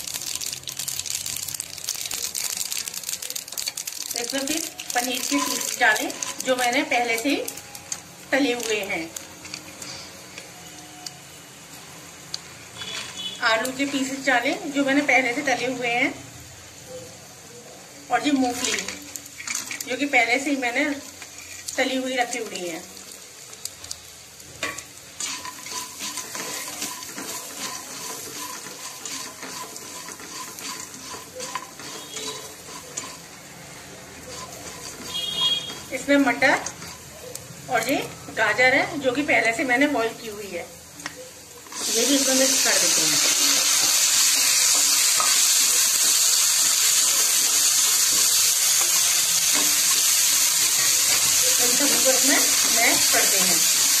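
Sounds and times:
oil sizzling: 0.0s - 54.0s
spatula scraping a pan: 5.2s - 6.5s, 24.6s - 36.0s, 48.1s - 53.4s.

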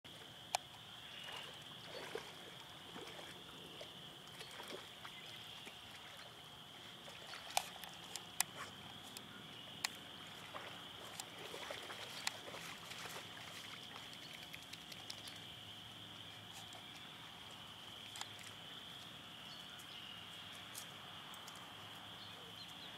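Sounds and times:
dogs splashing and lapping water: 1.2s - 9.1s, 9.9s - 15.7s.

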